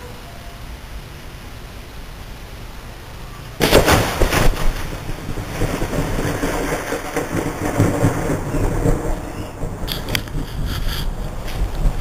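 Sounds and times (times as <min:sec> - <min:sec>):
thunder cracking and rumbling: 0:03.6 - 0:12.0.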